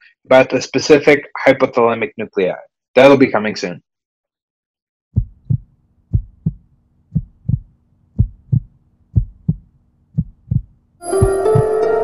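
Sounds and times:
heartbeat thumps: 5.2 - 11.8.

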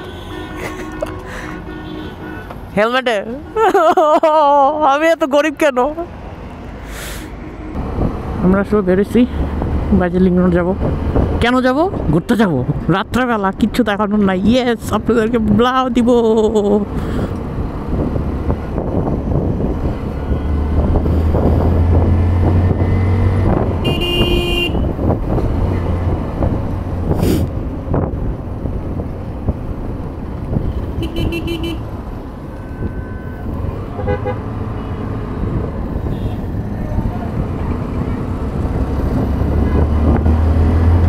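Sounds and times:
vehicle horns tooting: 0.0 - 2.6, 23.8 - 24.9, 31.0 - 35.3, 36.0 - 36.5
wind rush on microphone: 7.8 - 12.9, 16.9 - 32.2, 35.3 - 41.0.

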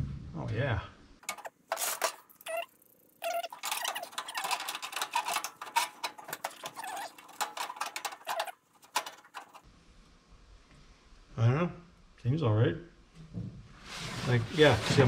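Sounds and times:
steering column clicks and rattles: 3.3 - 9.6.

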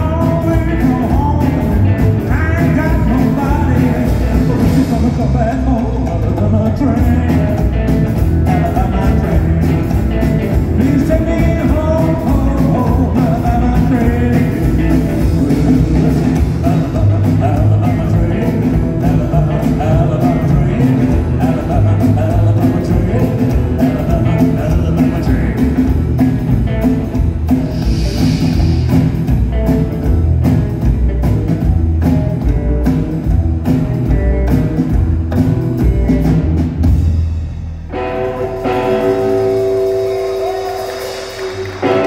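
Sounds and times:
man singing: 0.0 - 27.0
rockabilly band playing: 0.0 - 42.0.

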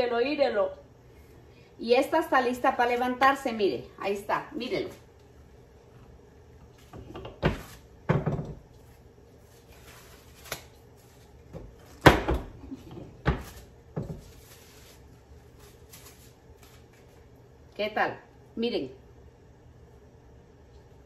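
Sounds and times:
plastic sheet crinkling: 8.8 - 12.0, 13.4 - 17.3.

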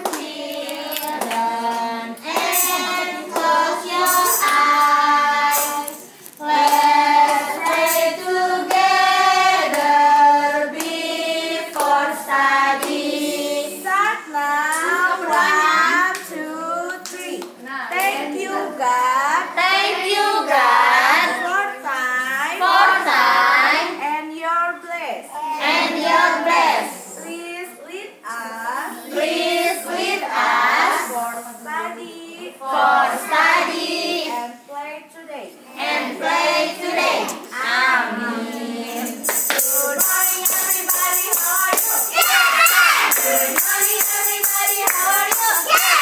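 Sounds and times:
hand claps: 0.0 - 1.4, 2.2 - 4.8, 11.8 - 12.0, 39.0 - 46.0
children singing in unison: 0.0 - 16.9, 18.0 - 21.4, 22.6 - 23.9, 25.4 - 27.0, 29.0 - 34.4, 35.7 - 46.0.

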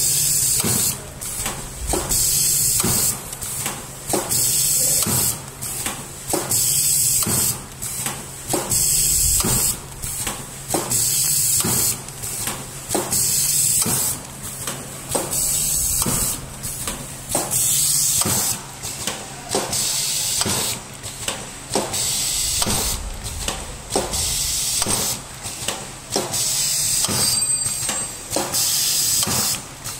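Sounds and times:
pneumatic air hiss: 0.0 - 20.8, 21.8 - 29.6
machine mechanical clicks: 0.2 - 27.9.

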